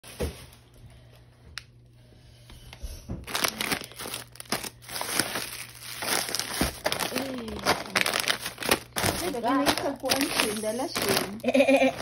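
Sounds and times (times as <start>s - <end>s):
plastic packets crinkling: 3.2s - 12.0s.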